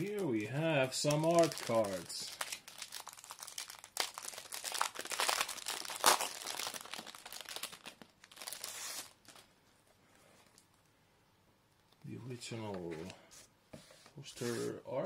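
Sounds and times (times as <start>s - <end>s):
plastic wrapper crinkling: 0.0s - 9.5s.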